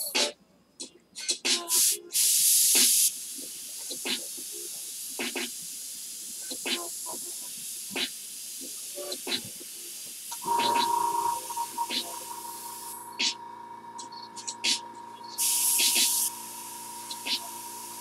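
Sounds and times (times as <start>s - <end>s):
airbrush spraying hiss: 1.7s - 18.0s
blast of air: 15.4s - 18.0s.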